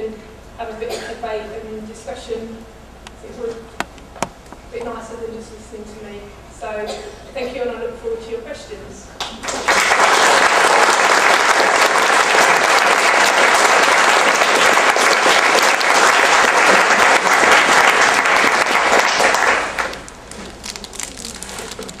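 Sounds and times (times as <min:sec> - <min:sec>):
audience applauding: 0:09.3 - 0:21.3.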